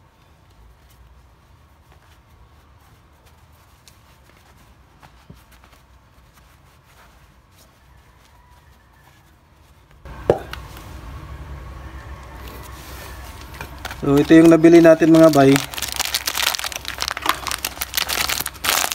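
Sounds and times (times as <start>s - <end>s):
cloth rubbing metal parts: 0.0s - 11.2s.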